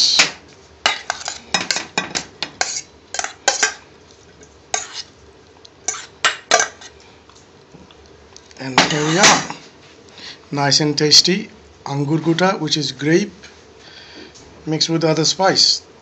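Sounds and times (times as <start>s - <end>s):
dishes and utensils clinking: 0.9s - 3.8s, 5.9s - 6.9s.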